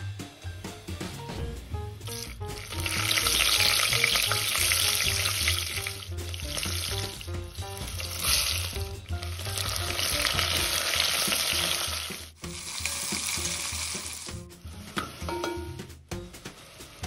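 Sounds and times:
onions sizzling in hot oil: 2.0s - 14.5s.

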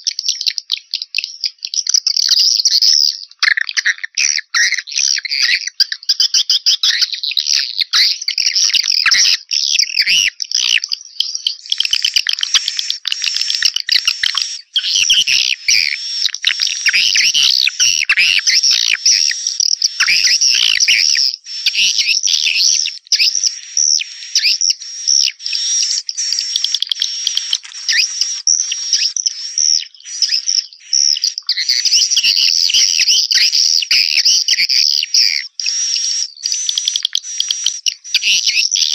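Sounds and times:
swiftlet chirps and twitters: 8.1s - 38.9s.

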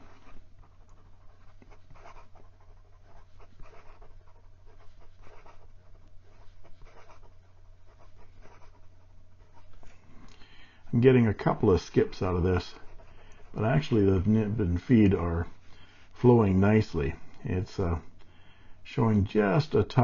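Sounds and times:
fountain pen scratching on paper: 0.0s - 9.9s, 12.0s - 14.3s.

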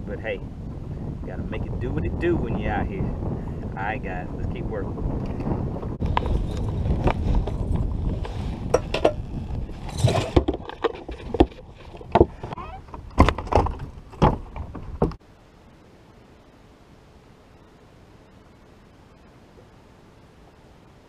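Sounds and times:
wind buffeting microphone: 0.0s - 15.2s
knocks and clunks on boat deck: 10.1s - 15.2s.

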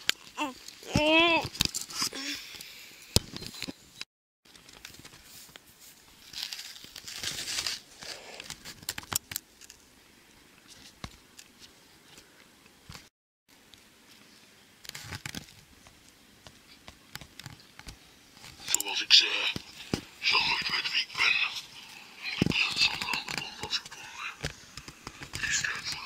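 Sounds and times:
rustling handling noise on microphone: 4.5s - 9.7s.

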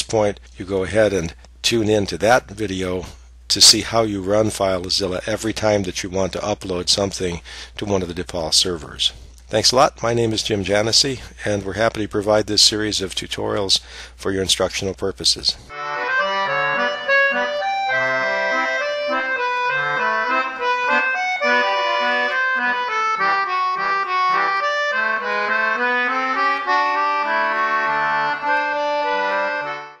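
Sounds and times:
accordion playing: 15.7s - 30.0s.

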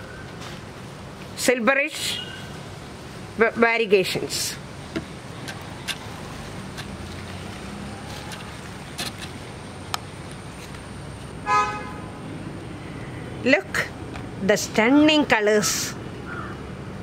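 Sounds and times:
road traffic rumble: 0.0s - 17.0s
vehicle horn toot: 11.4s - 12.1s.

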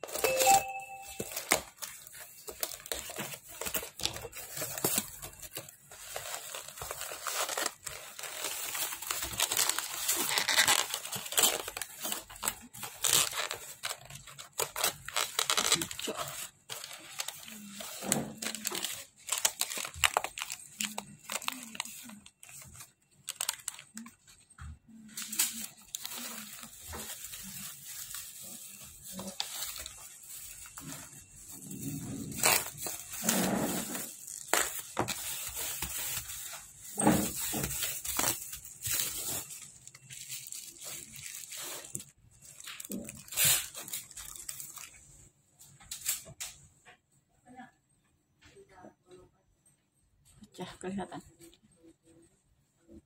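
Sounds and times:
packaging rustling and tearing: 0.0s - 45.2s.

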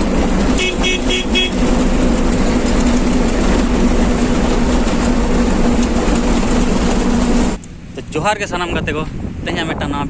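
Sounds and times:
heavy vehicle engine droning: 0.0s - 8.0s.

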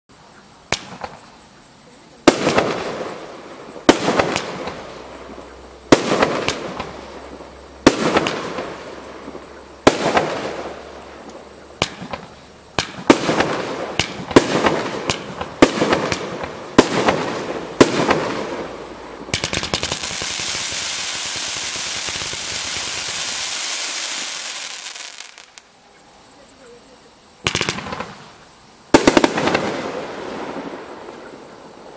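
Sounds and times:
firework bangs: 0.7s - 1.3s, 2.2s - 25.6s, 27.4s - 31.9s
firework hiss: 0.7s - 25.7s.

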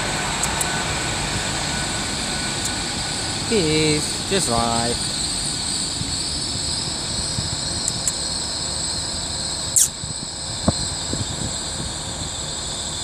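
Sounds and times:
high whine: 0.0s - 13.0s
train running past: 0.0s - 13.0s
short sharp squeal: 9.7s - 10.0s.

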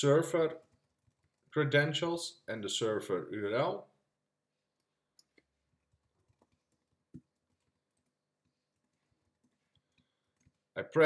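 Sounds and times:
computer keys clicking: 0.6s - 1.5s, 4.8s - 10.7s.

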